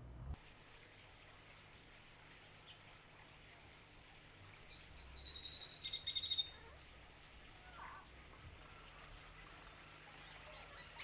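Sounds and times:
bird calling with sharp high notes: 4.7 - 6.6.

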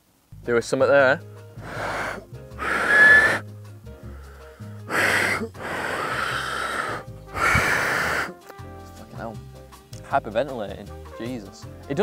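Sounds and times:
background music: 0.4 - 12.0
breathy air rushes: 1.6 - 8.4
thin whistle tone: 2.6 - 3.4.

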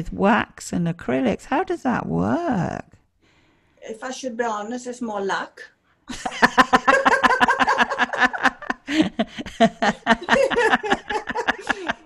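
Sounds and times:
women laughing: 6.1 - 12.0.

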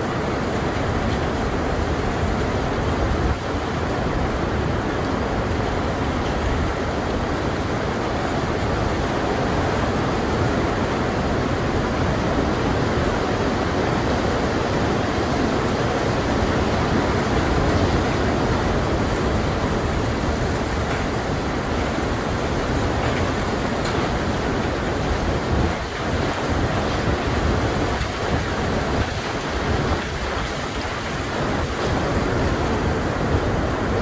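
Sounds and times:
heavy rain pouring: 0.0 - 34.0.

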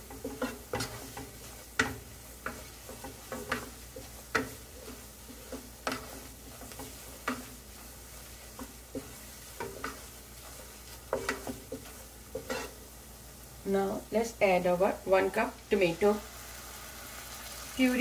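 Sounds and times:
wooden spatula scraping a pan: 0.0 - 13.1
roux sizzling: 0.0 - 18.0.

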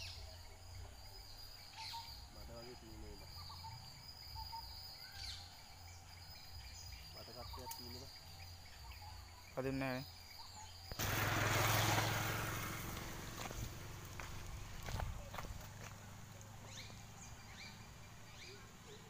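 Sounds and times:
cast net splashing on water: 11.0 - 14.0.

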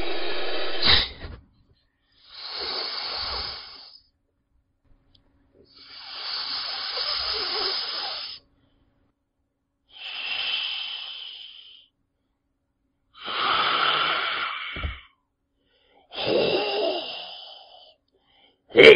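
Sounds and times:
long hisses: 0.0 - 1.0, 2.2 - 4.0, 5.7 - 8.4, 9.9 - 11.9, 13.2 - 15.1, 16.1 - 18.0.

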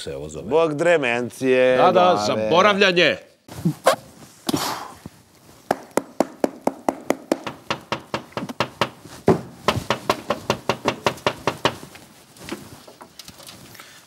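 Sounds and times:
rapid sharp knocking: 5.7 - 11.9.

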